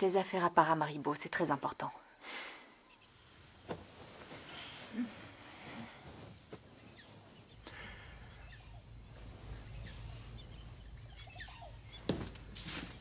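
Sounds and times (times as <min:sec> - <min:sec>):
insect drone: 0:00.0 - 0:13.0
bird chirps: 0:00.2 - 0:03.4, 0:06.9 - 0:12.1
low hum: 0:07.1 - 0:12.6.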